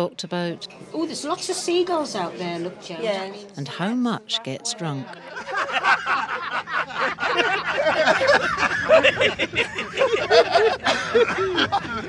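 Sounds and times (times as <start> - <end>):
men laughing: 5.2 - 12.0.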